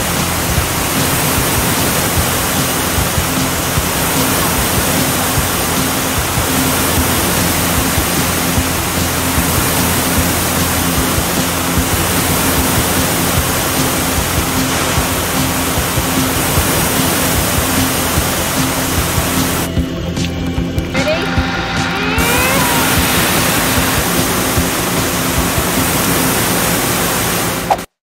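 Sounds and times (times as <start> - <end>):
fire hose spraying water: 0.0 - 19.7, 21.0 - 28.0.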